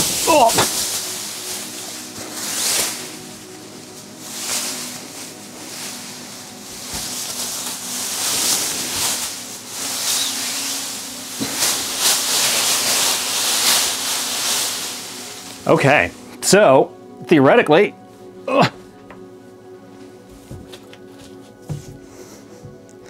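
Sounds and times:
plastic wrapping crinkling: 0:00.0 - 0:16.2.

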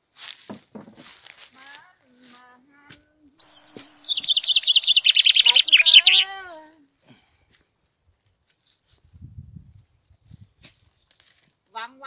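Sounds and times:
songbird singing: 0:03.4 - 0:06.6.

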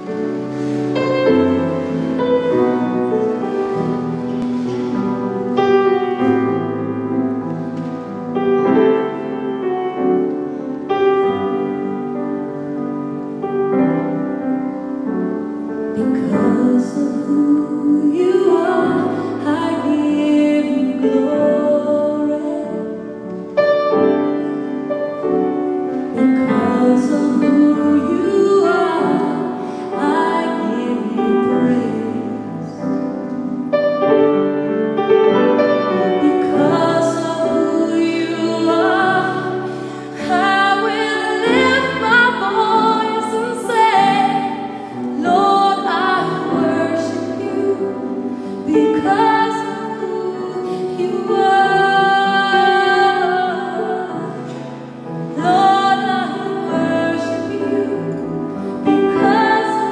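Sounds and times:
piano accompaniment: 0:00.0 - 0:59.9
woman singing into a microphone: 0:15.9 - 0:23.5, 0:26.0 - 0:33.3, 0:35.9 - 0:59.9.

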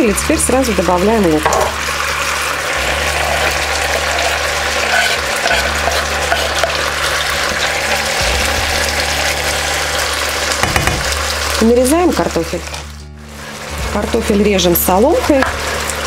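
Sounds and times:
food sizzling in a pan: 0:00.0 - 0:16.0
spatula scraping and stirring: 0:03.0 - 0:07.8.

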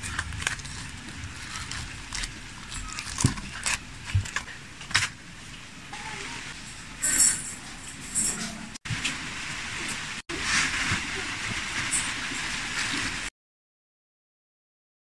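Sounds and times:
plastic film crinkling: 0:00.0 - 0:05.1.

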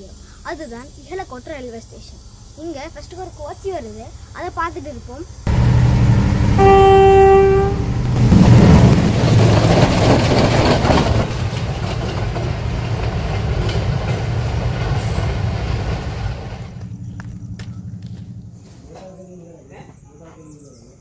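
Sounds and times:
train rumbling on rails: 0:00.1 - 0:19.4
train horn blast: 0:05.6 - 0:08.1.

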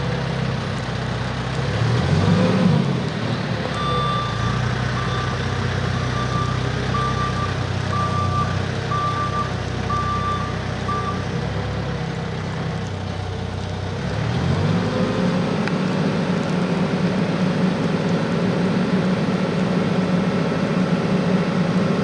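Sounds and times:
diesel engine running and revving: 0:00.0 - 0:22.0
reversing alarm beeping: 0:03.8 - 0:05.4, 0:06.0 - 0:11.2.

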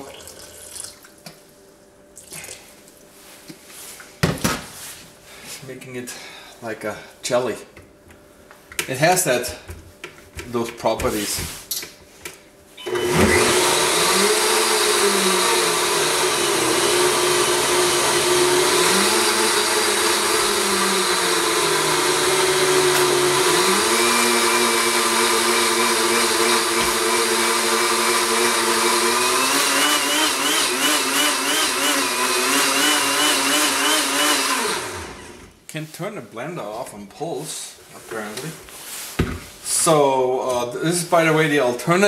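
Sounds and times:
blender motor running: 0:12.8 - 0:35.5.

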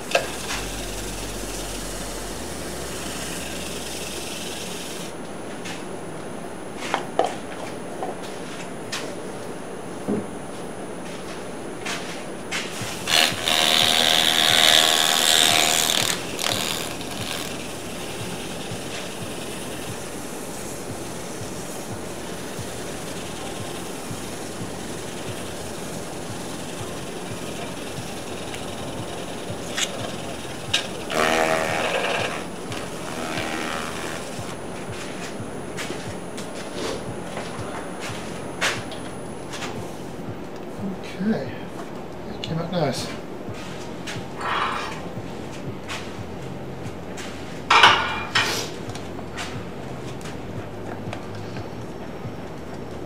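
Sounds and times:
wood lathe running: 0:00.0 - 0:05.2, 0:12.4 - 0:40.4
paper towel rubbing spinning wood: 0:00.0 - 0:05.9, 0:11.1 - 0:41.0.

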